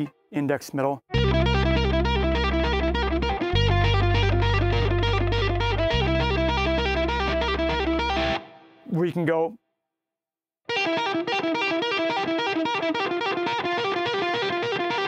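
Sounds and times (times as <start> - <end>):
bass notes in backing groove: 1.1 - 8.4
overdriven electric guitar lead: 1.1 - 8.6, 10.7 - 15.0.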